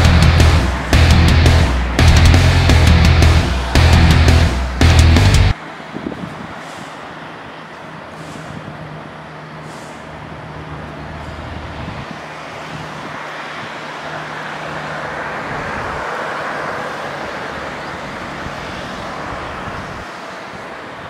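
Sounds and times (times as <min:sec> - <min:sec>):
low engine hum: 0:00.0 - 0:05.6
rushing noise: 0:00.0 - 0:21.0.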